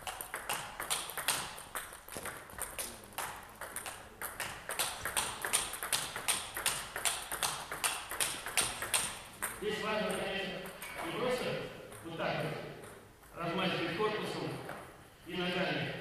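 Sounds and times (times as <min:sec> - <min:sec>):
table tennis ball clicking: 0:00.0 - 0:11.1.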